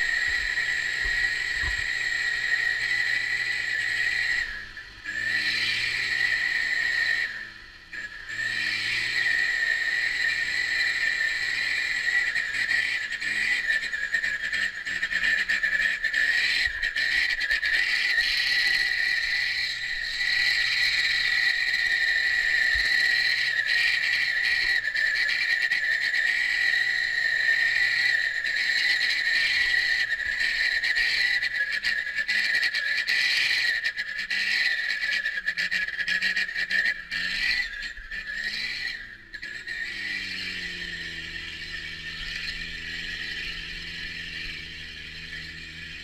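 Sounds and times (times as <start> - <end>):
high-pitched insect drone: 0.0 - 46.0
faint truck engine hum: 38.9 - 46.0.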